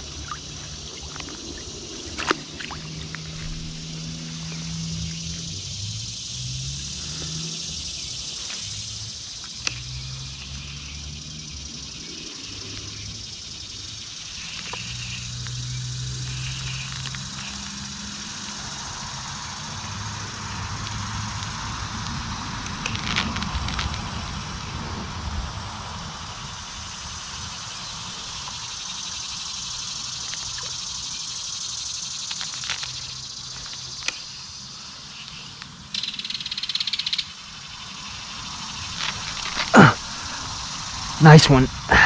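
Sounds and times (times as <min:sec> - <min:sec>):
stream running over rocks: 0:00.0 - 0:05.5, 0:38.3 - 0:42.0.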